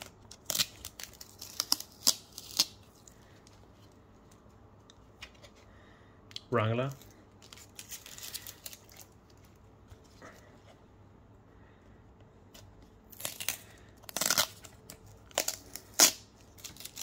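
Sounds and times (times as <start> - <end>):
tape peeled off plastic: 0.0 - 4.4, 13.0 - 17.0.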